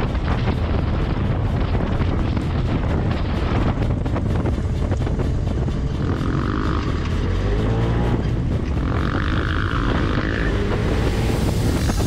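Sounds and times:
utility vehicle engine running: 0.0 - 12.0
wind rumble on microphone: 0.0 - 12.0
rush of higher hiss: 11.0 - 12.0.

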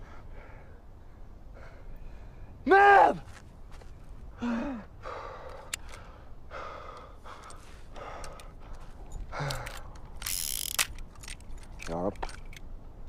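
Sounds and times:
man breathing hard: 0.0 - 2.6, 4.3 - 10.1
metallic revolver rattle: 9.5 - 12.7.

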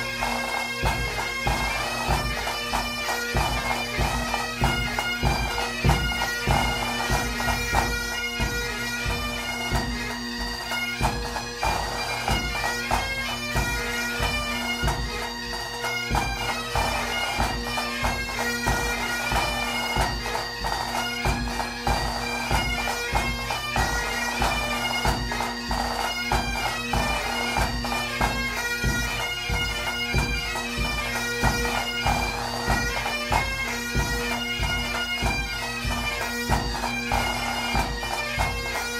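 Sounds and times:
bagpipes playing a melody: 0.0 - 38.9
regular drumbeat: 0.0 - 38.9.

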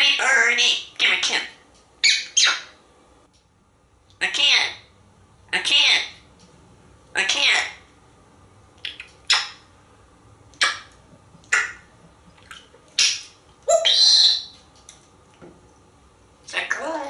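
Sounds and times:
parrot calling: 0.0 - 2.8, 4.2 - 4.9, 5.5 - 6.3, 7.1 - 7.9, 8.8 - 9.7, 10.6 - 11.9, 12.9 - 14.6, 16.5 - 17.0.

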